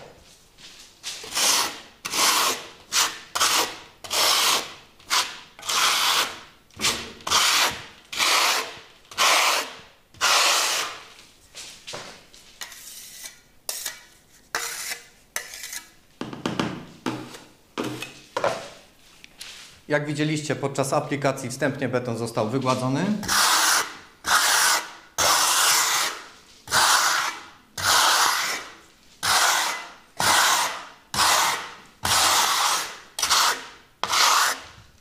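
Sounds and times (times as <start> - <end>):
trowel scraping wet plaster: 1.2 - 11.0, 12.6 - 16.0, 23.2 - 34.8.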